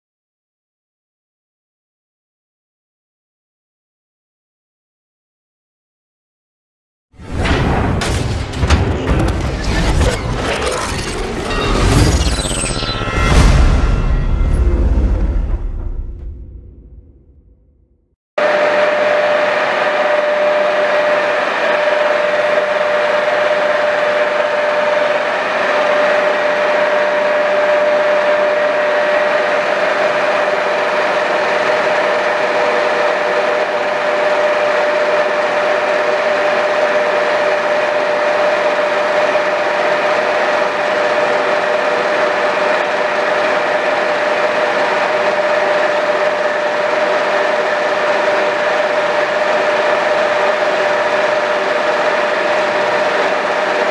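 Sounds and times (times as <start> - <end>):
lathe running: 18.4 - 53.9.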